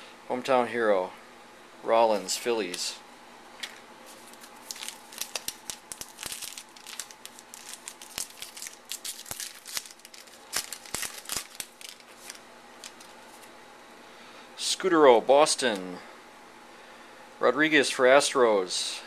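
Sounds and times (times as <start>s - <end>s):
foil wrapper tearing and crinkling: 4.1s - 13.5s.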